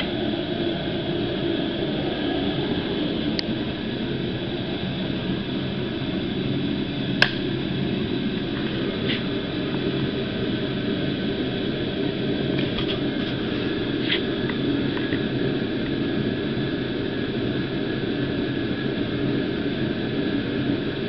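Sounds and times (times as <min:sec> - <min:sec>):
steady mechanical drone: 0:00.0 - 0:21.0
sharp click: 0:07.2 - 0:07.5.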